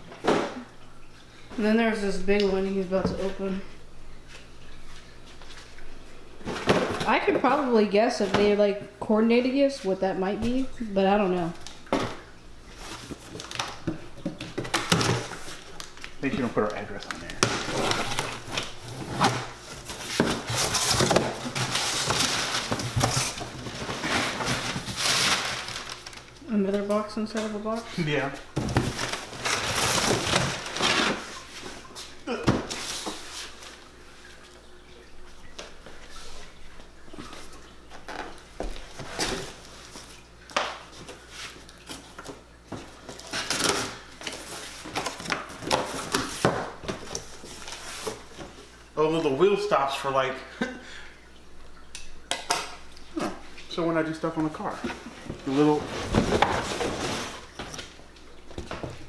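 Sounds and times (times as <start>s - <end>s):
crumpled paper rustling: 14.4s - 26.4s, 27.7s - 33.8s, 54.8s - 58.8s.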